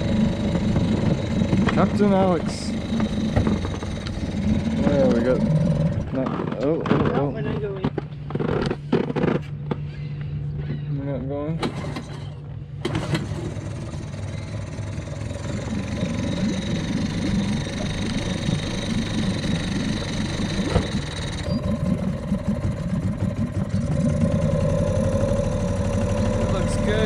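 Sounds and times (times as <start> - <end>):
outboard motor running: 0.0 - 27.0.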